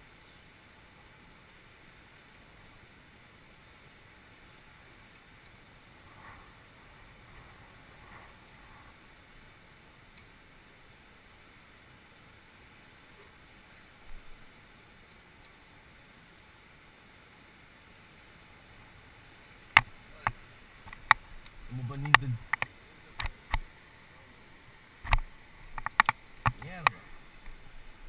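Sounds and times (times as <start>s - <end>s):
faint steady hiss: 0.0s - 28.0s
light ticks: 2.2s - 2.5s, 5.1s - 5.6s, 10.1s - 10.4s, 15.0s - 15.6s, 19.8s - 23.7s, 25.0s - 27.6s.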